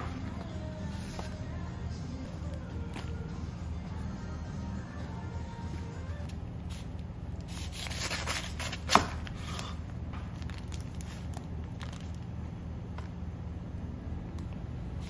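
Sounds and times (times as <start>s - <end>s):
paper crackling and rustling: 7.5s - 9.2s, 10.3s - 12.3s.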